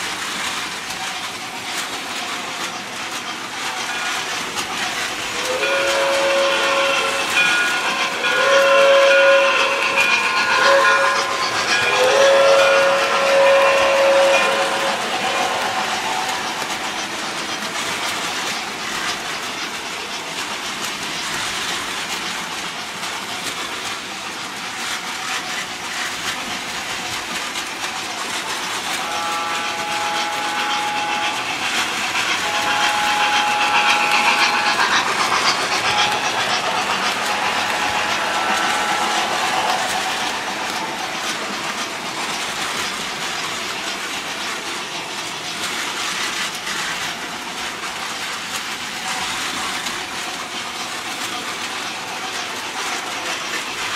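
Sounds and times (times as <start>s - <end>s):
model train wheels clattering on rail: 0.0s - 53.9s
train whistle toots: 5.2s - 17.0s, 28.9s - 41.5s.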